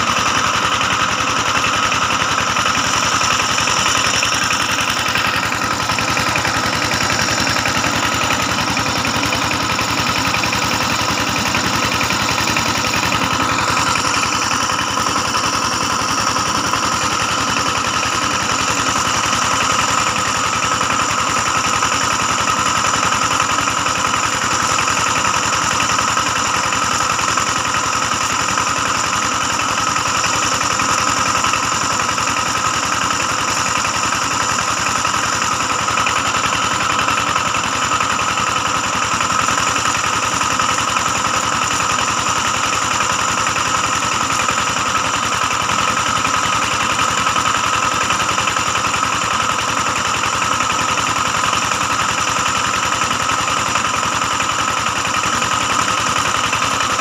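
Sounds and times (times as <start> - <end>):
engine droning steadily: 0.0 - 57.0.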